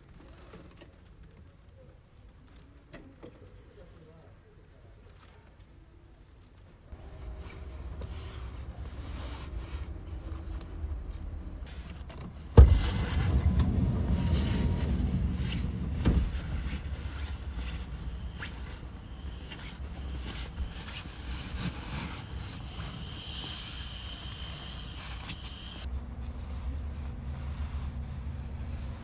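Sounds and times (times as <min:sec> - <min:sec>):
bedding rustling: 0:06.9 - 0:23.3
low rumble: 0:06.9 - 0:25.1
loud thump: 0:12.5 - 0:18.7.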